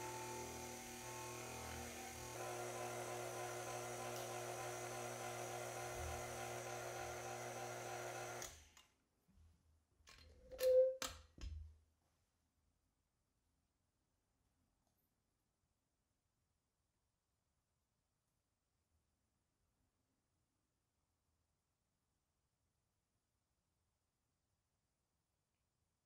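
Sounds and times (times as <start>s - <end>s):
stand mixer motor humming: 0.0s - 8.5s.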